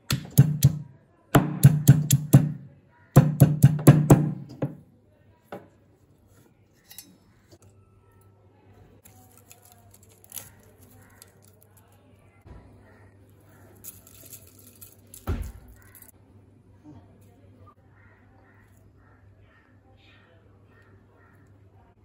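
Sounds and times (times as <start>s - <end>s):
knock on a metal pot: 3.2s - 4.8s.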